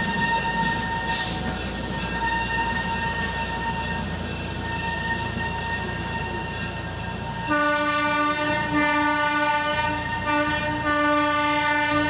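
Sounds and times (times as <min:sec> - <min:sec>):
train horn blasts: 0:07.4 - 0:12.0.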